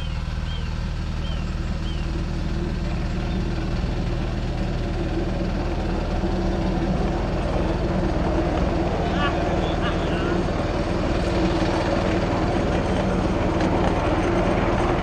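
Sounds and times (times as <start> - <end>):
bird chirping: 0.0 - 2.2
higher droning tone: 0.0 - 15.0
locomotive engine low drone: 0.0 - 15.0.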